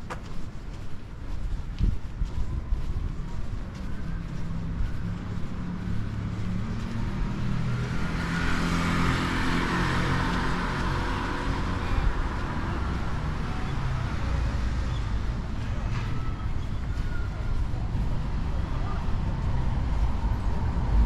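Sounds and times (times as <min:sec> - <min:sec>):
low traffic rumble: 0:00.0 - 0:21.0
car passing by: 0:04.4 - 0:17.3.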